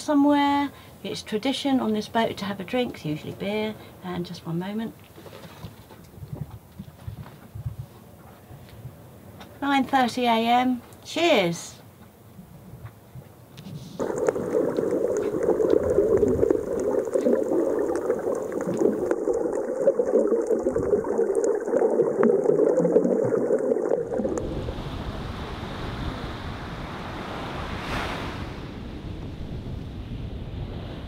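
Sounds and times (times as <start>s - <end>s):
underwater crackling clicks: 14.0s - 20.7s
muffled underwater rush: 14.0s - 31.0s
small waves breaking on shore: 24.0s - 31.0s.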